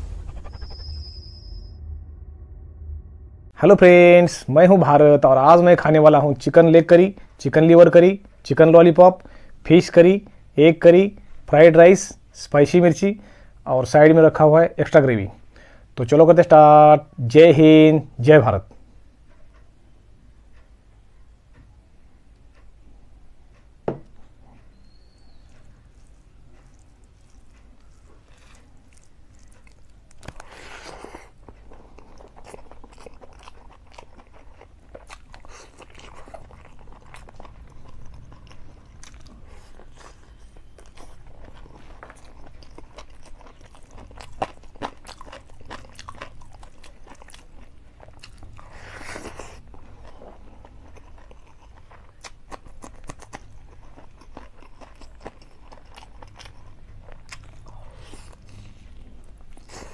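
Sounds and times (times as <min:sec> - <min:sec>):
man chewing food: 0:22.3 - 0:59.9.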